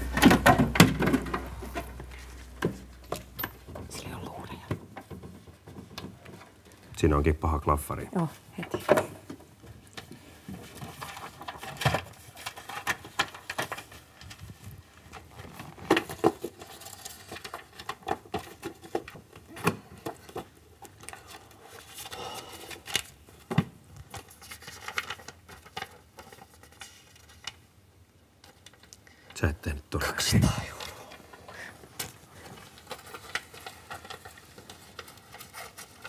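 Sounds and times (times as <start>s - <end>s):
objects knocking and clicking: 0.0s - 4.0s
paper and packaging rustling: 0.0s - 29.3s, 30.2s - 36.0s.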